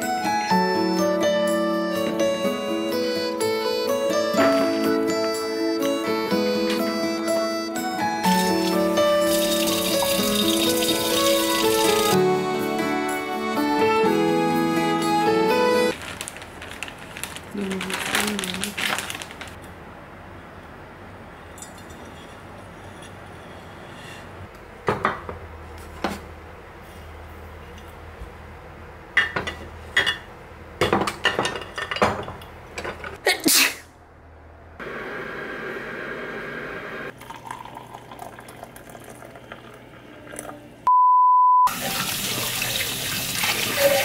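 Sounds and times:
faucet running over dishes: 8.2s - 12.2s, 37.2s - 40.6s, 41.7s - 44.0s
water poured into a mug: 9.3s - 12.2s, 37.1s - 40.5s.

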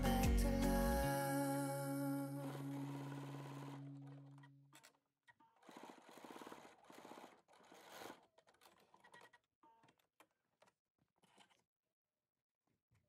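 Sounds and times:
sewing machine stitching: 2.2s - 11.7s.

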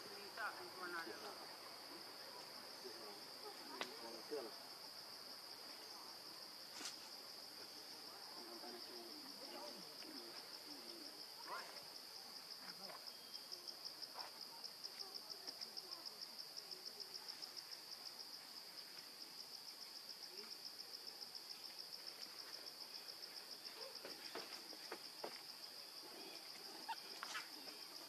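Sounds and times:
insect chirring: 8.3s - 28.0s.

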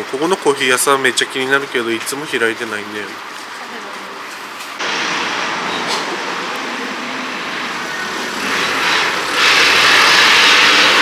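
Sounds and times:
vehicle tyre hiss passing: 4.8s - 11.0s.

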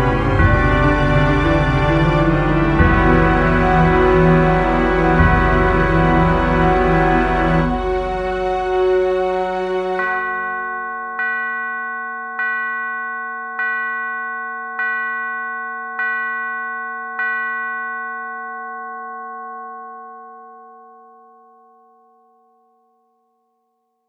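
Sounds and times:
bell-like note: 0.0s - 8.3s, 9.0s - 24.0s
held chord background music: 0.0s - 10.7s.

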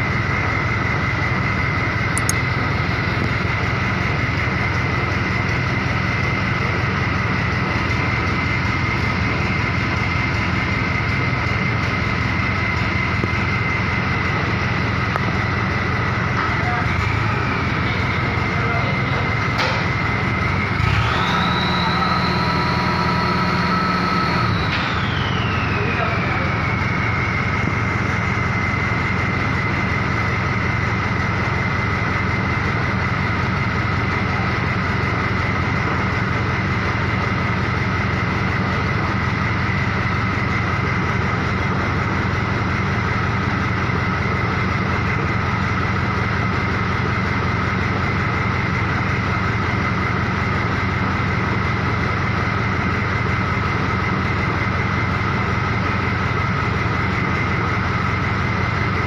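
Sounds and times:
high-pitched whine: 0.0s - 47.0s
truck engine idling: 0.0s - 59.0s.

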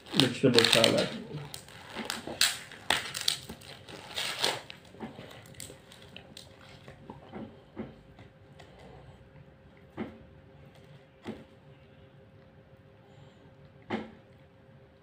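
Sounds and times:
plastic packaging crinkling: 0.0s - 7.1s.

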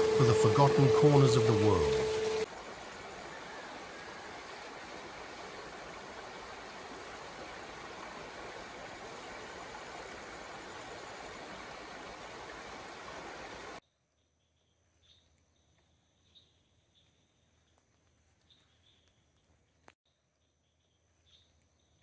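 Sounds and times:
stream running over rocks: 0.0s - 13.8s.

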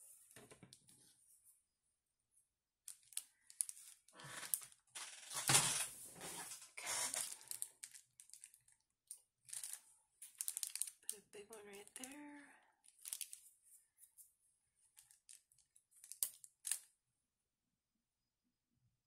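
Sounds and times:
plastic sheets crinkling: 2.9s - 8.8s, 9.4s - 13.5s, 14.9s - 16.9s.

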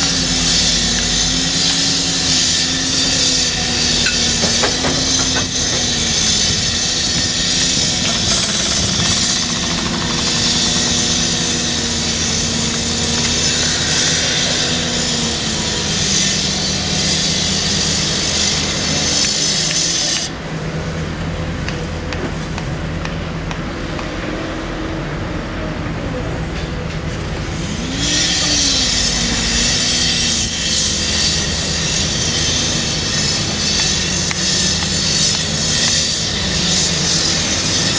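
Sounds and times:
excavator diesel engine running: 0.0s - 15.8s.

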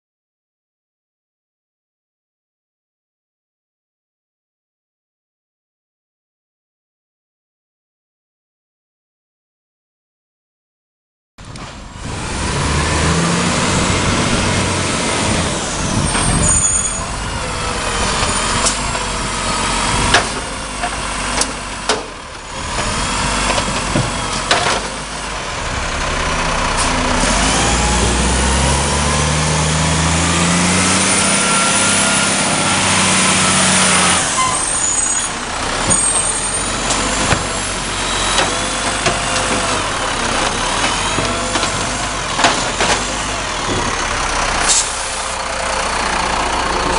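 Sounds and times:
garbage truck diesel engine revving: 11.4s - 46.9s
air brakes squealing and hissing: 15.4s - 18.9s, 33.4s - 38.8s, 44.6s - 45.4s.

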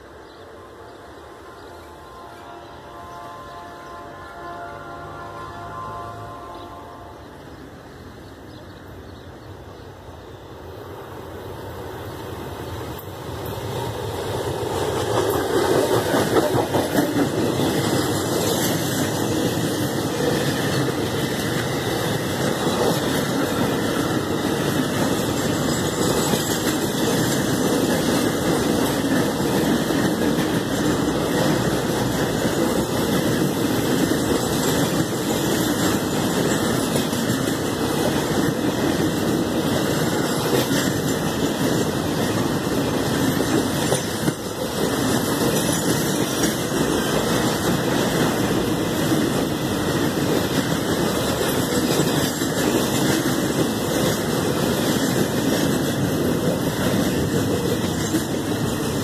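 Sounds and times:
steel wheels rolling on rails: 12.6s - 59.0s.

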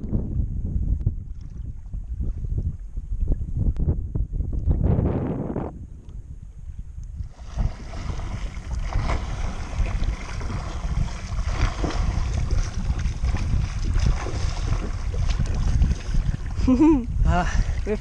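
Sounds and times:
wind buffeting microphone: 0.0s - 18.0s
sea water sloshing and splashing: 1.2s - 2.9s, 7.2s - 16.9s.

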